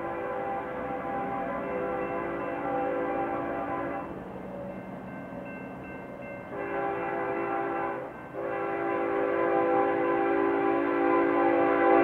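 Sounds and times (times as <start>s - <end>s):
locomotive air horn blasts: 0.0s - 4.1s, 6.5s - 12.0s.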